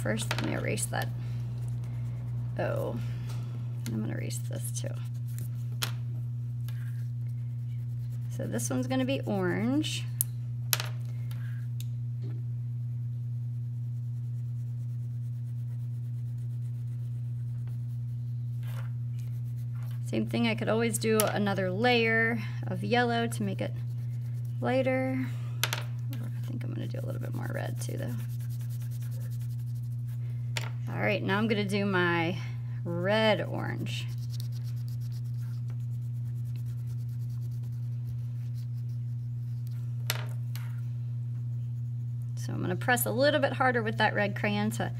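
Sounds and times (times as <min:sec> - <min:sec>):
low electrical hum: 0:00.0 - 0:44.9
crayon scratching on paper: 0:14.0 - 0:18.1, 0:26.2 - 0:30.2, 0:33.9 - 0:39.8.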